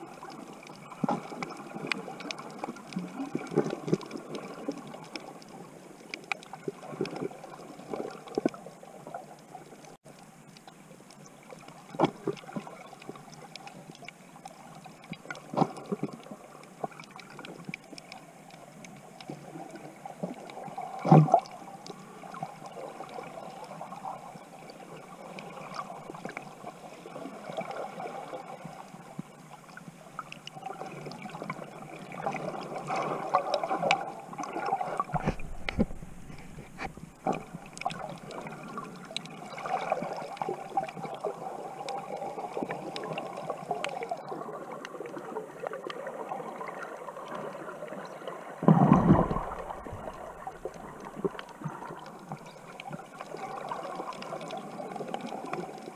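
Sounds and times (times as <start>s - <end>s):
underwater gurgling wash: 0.0s - 55.9s
deep underwater rumble: 31.5s - 43.6s, 48.3s - 55.8s
sharp underwater clicks: 35.1s - 38.4s.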